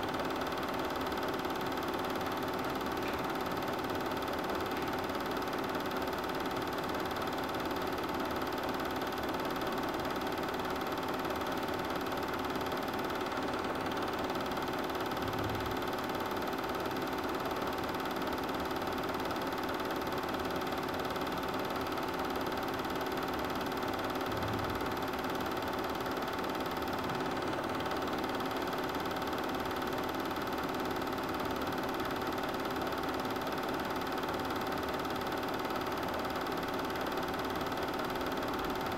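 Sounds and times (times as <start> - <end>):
film projector running: 0.0 - 38.9.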